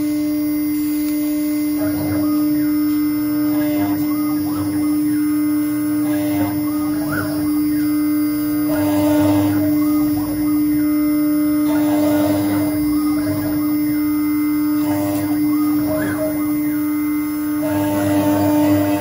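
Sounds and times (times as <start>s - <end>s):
motors whining: 0.0s - 19.0s
router spindle humming: 0.0s - 19.0s.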